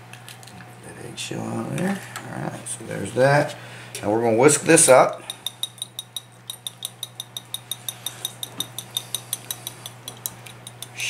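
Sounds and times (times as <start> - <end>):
whisk clinking against glass bowl: 4.8 - 11.0.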